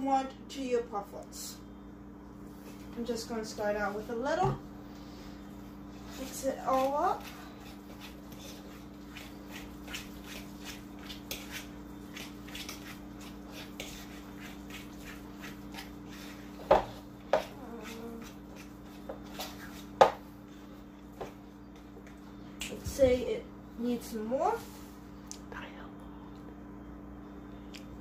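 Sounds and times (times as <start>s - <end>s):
steady low hum: 0.0s - 28.0s
utensil scraping a bowl: 5.9s - 20.2s.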